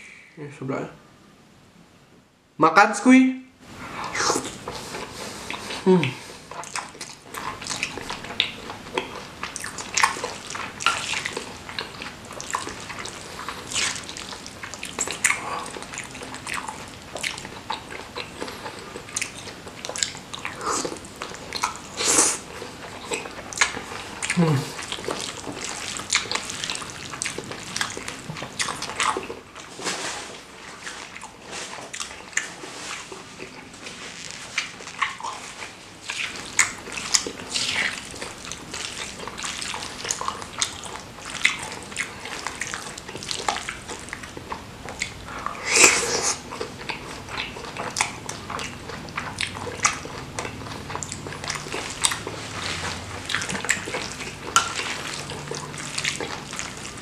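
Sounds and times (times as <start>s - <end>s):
chewing and wet mouth smacking: 4.0s - 57.0s.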